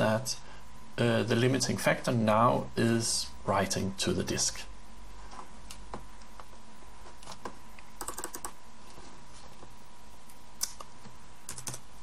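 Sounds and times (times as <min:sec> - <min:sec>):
computer keyboard keystrokes: 0:08.0 - 0:08.6, 0:11.5 - 0:11.8.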